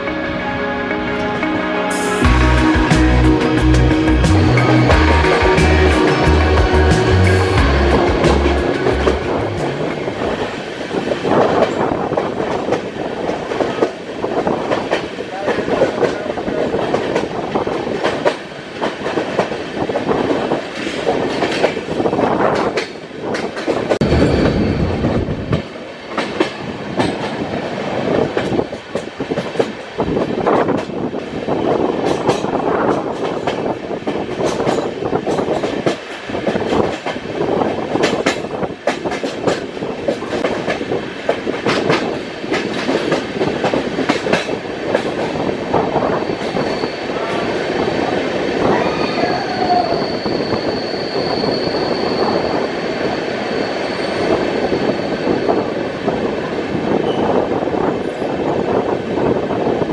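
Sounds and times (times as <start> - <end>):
train wheels rushing on track: 1.1 - 59.9
clickety-clack of rail joints: 8.1 - 48.9, 54.1 - 59.9.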